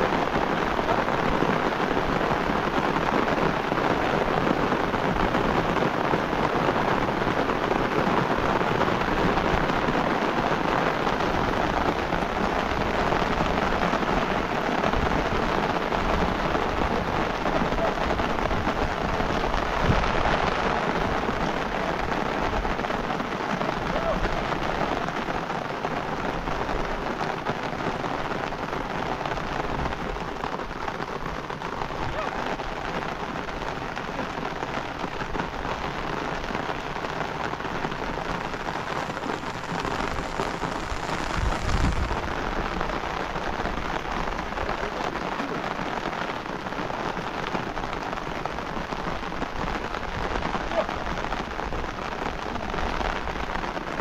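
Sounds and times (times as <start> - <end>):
heavy rain falling: 0.0 - 54.0.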